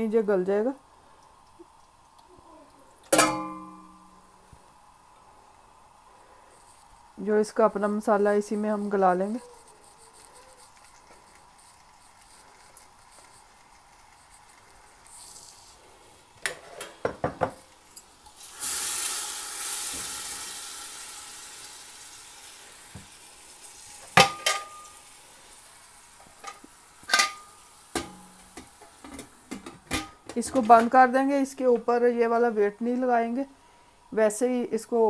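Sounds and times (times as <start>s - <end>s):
metal utensils clinking on pot: 3.1s - 3.9s, 24.2s - 25.0s, 26.4s - 31.0s
pressure cooker hiss: 14.2s - 31.4s
chicken sizzling in pressure cooker: 15.0s - 31.4s.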